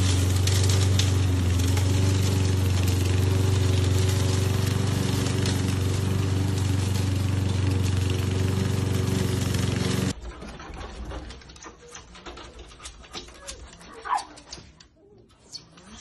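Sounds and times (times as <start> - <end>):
lawn mower engine running: 0.0 - 10.2.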